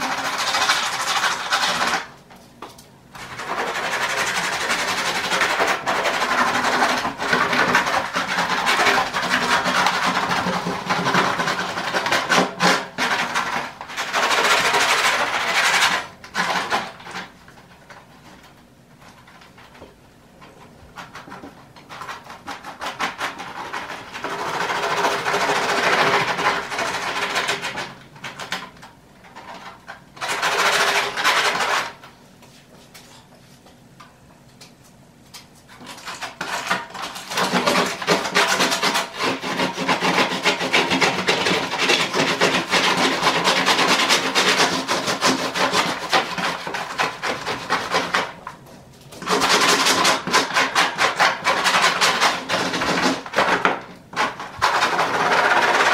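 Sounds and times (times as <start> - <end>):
hand tool scraping foam: 0.0 - 2.1, 3.4 - 17.3, 21.0 - 27.9, 35.8 - 48.4, 49.2 - 55.9.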